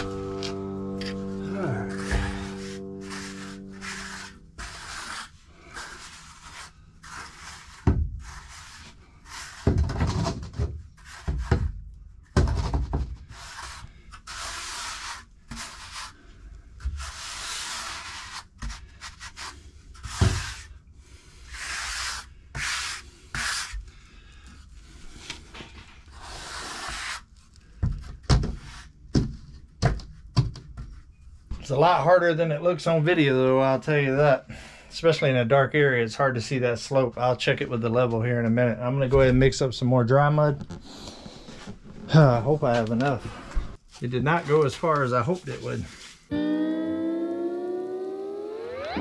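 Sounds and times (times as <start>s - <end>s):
trowel scraping mortar: 3.2s - 9.7s.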